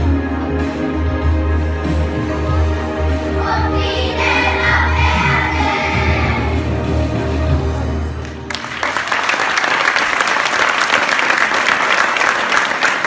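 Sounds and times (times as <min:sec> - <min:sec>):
music: 0:00.0 - 0:09.9
audience applause: 0:08.2 - 0:13.0.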